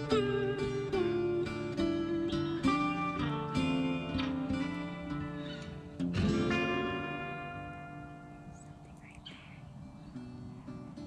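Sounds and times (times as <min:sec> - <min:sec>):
acoustic guitar strumming: 0:00.0 - 0:11.0
faint bird chirps: 0:08.2 - 0:11.0.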